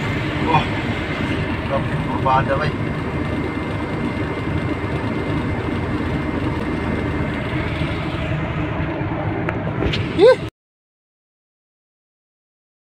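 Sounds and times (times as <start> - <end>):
truck engine and road noise: 0.0 - 10.5
loud rising tone: 3.0 - 10.5.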